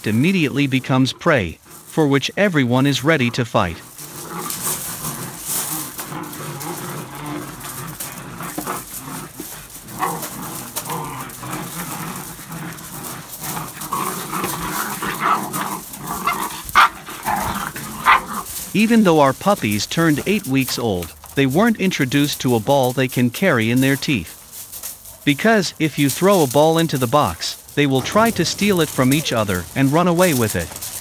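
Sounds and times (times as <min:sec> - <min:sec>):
puppies growling and yipping: 0:03.8 - 0:18.8.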